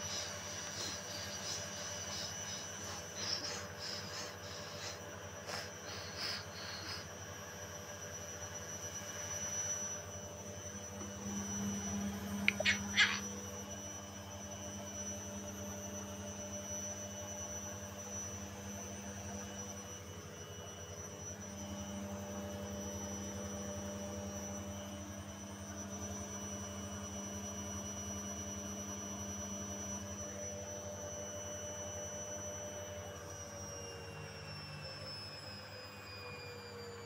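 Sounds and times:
washing machine running: 0.0 - 13.3.

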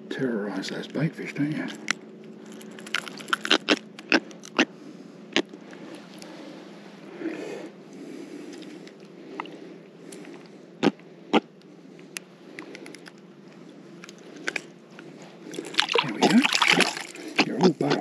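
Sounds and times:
fish splashing in water: 15.4 - 18.0.

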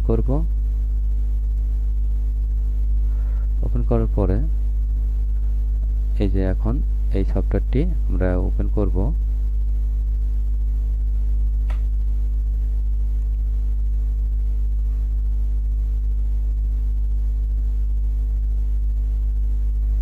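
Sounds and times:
low electrical hum: 0.0 - 20.0
sharp click: 11.6 - 11.9.

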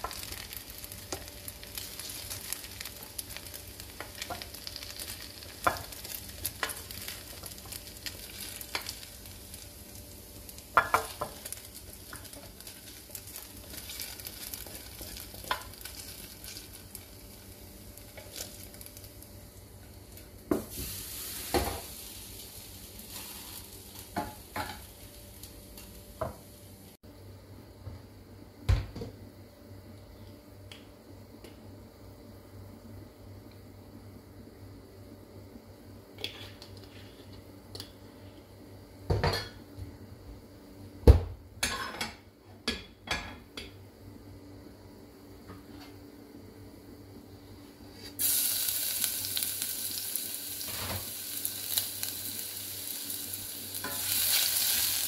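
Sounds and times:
steady hiss: 47.6 - 55.0.

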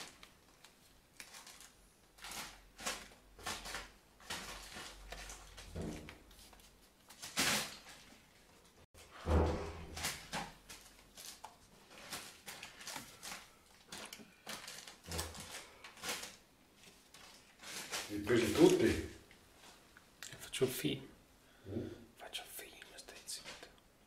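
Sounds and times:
plastic bottles crinkling: 0.0 - 8.8, 9.8 - 19.1.

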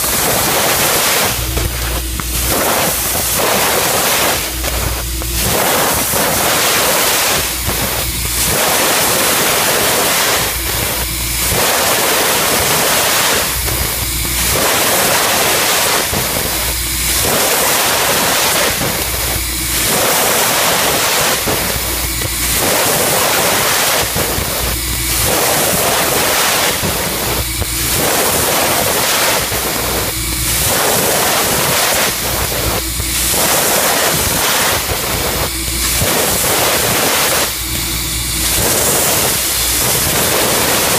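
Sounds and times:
low hum: 0.0 - 12.8
laser cutter hissing: 0.0 - 40.9.

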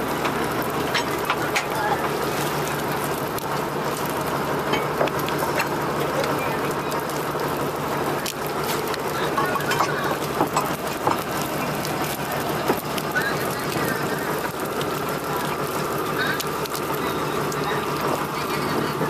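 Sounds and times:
boat engine running: 0.0 - 19.0
sharp taps and clatter: 9.4 - 11.4.

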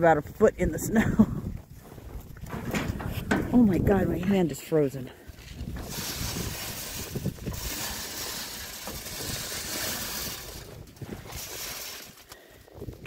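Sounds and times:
wind buffeting microphone: 0.0 - 4.6, 5.3 - 13.0
grain pouring into metal trough: 5.6 - 12.3.

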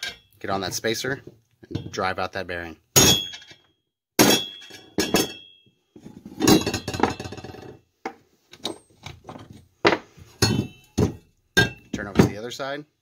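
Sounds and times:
metal clatter: 6.3 - 7.8.

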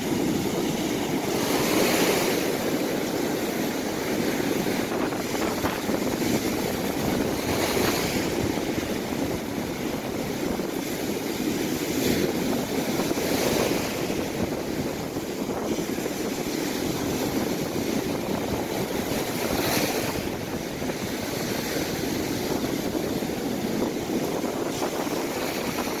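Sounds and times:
waves crashing on a shore: 0.0 - 26.0.

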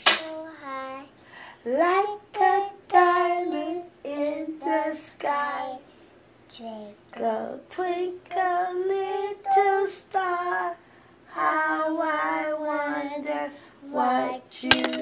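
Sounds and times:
toddler singing: 8.4 - 10.6.

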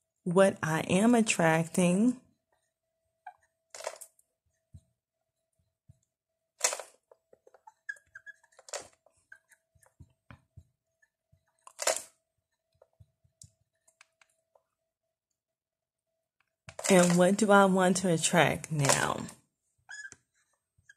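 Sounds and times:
marker squeak: 3.2 - 3.5, 7.4 - 11.1, 19.9 - 20.9
marker scratching on whiteboard: 7.3 - 11.6, 19.9 - 20.9.

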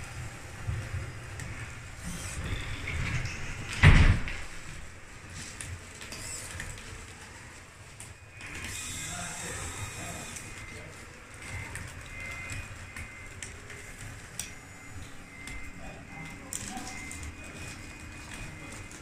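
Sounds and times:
high motor whine: 0.0 - 3.9, 8.1 - 19.0.

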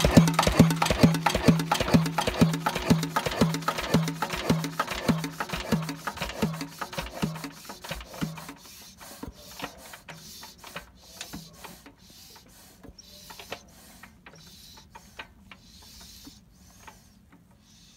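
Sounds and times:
diesel engine turning over slowly: 0.0 - 8.6.

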